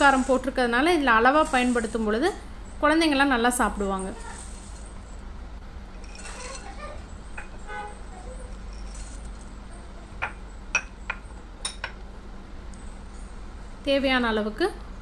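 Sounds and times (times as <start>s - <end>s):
clinks against glass bowl: 10.2s - 12.0s.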